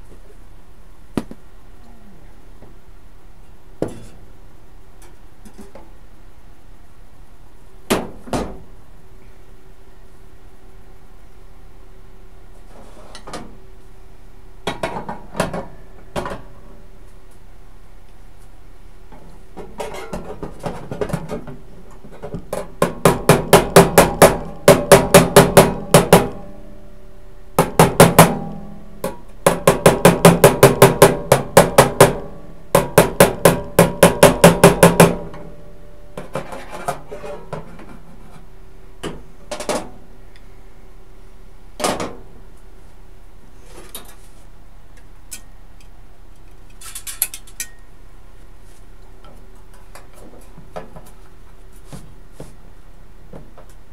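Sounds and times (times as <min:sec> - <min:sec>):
hammer striking sheet metal: 0:22.8 - 0:26.5, 0:27.6 - 0:35.6.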